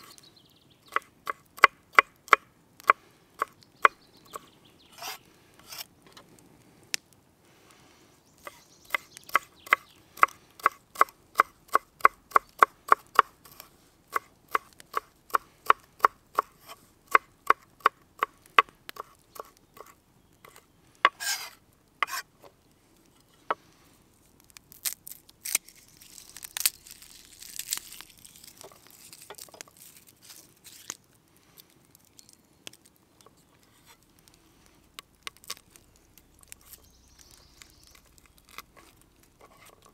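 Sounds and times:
knife scraping board: 0:04.9 - 0:05.9, 0:20.5 - 0:22.3, 0:38.8 - 0:39.9.

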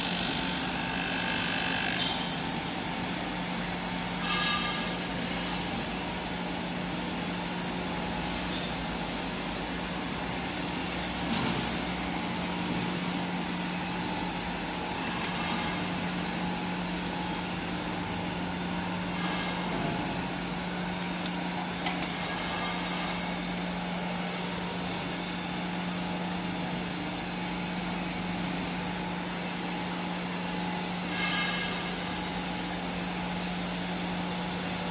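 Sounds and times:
glass edging machine running: 0:00.0 - 0:26.9.

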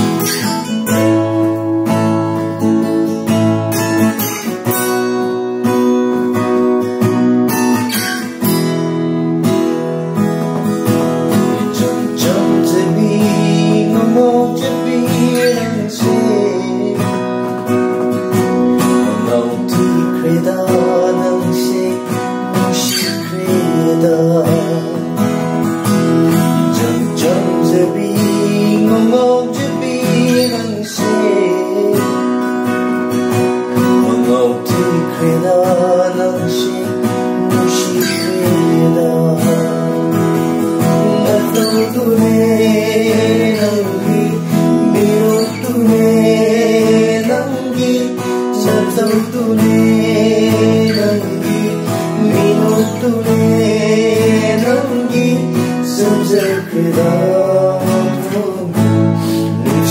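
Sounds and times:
acoustic guitars strumming: 0:00.0 - 0:59.9
person singing: 0:11.4 - 0:32.9, 0:33.6 - 0:59.9.

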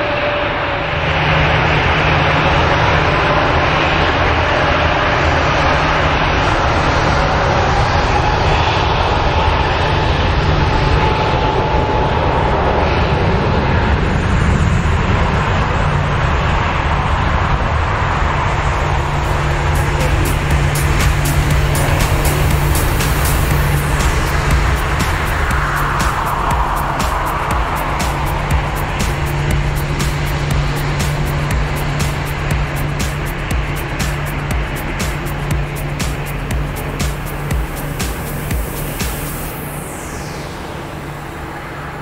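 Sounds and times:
faint engine whine: 0:00.0 - 0:42.0
jet engine noise: 0:00.0 - 0:42.0.

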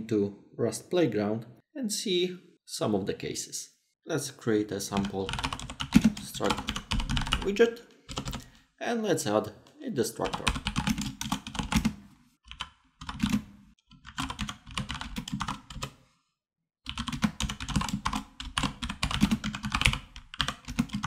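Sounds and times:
typing on computer keyboard: 0:05.0 - 0:07.5, 0:08.1 - 0:08.5, 0:10.2 - 0:16.0, 0:16.9 - 0:21.0.

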